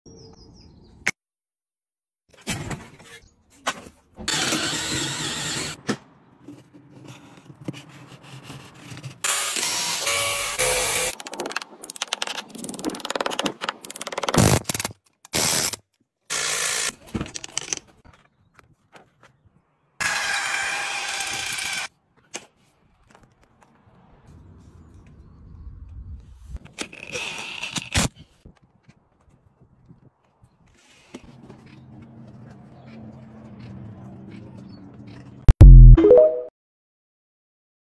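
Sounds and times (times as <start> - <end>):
power drill boring into brick: 4.3 - 5.8, 20.0 - 21.9.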